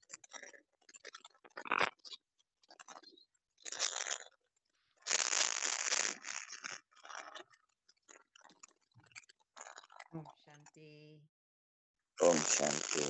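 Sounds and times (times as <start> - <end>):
small clicks and crackles: 0.0 - 10.2, 12.4 - 13.0
crunching rustling noise: 3.6 - 4.3, 5.0 - 8.7.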